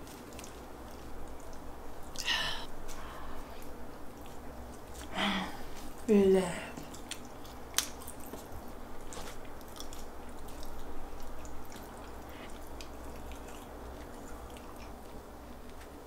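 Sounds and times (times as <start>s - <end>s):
low steady hum: 0.0s - 16.0s
wet clicks and squishes of dipping: 6.8s - 8.5s.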